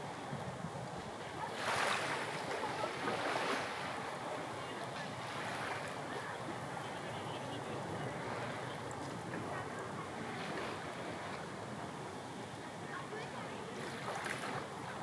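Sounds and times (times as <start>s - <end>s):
sea surf washing in: 0.0s - 6.8s.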